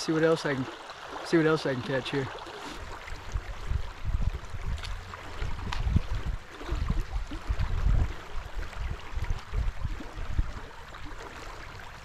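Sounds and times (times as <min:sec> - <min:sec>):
creek water running: 0:00.0 - 0:12.0
wind gusting on microphone: 0:02.8 - 0:10.8.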